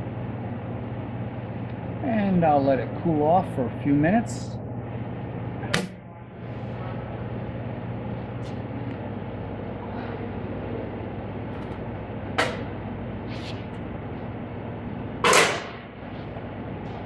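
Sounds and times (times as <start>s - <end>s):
steady background hum: 0.0s - 17.0s
furnace lid clunk: 12.3s - 12.8s, 15.2s - 15.9s.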